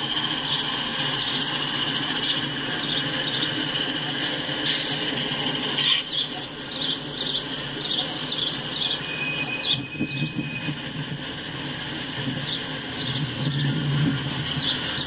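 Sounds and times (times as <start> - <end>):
train wheels rumbling and clicking: 0.0 - 15.0
wheel squeal on rail: 0.0 - 15.0.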